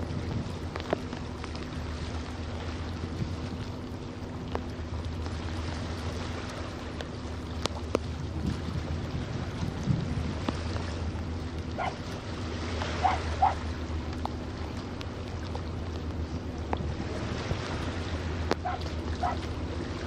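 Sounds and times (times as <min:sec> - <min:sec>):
wind buffeting microphone: 0:00.0 - 0:13.9
steady low rumble: 0:00.0 - 0:20.0.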